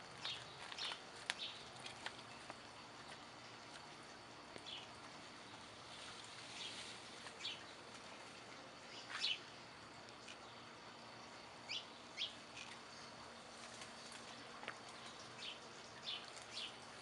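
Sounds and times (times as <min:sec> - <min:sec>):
birds chirping: 0:00.0 - 0:09.7, 0:10.3 - 0:17.0
faint background hiss: 0:00.0 - 0:17.0.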